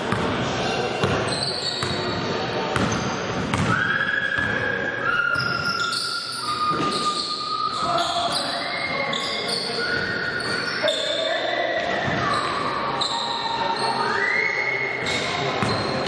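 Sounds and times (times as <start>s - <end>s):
echoing voices: 0.0s - 16.0s
sneakers squeaking: 0.0s - 16.0s
basketball bouncing: 2.8s - 3.7s.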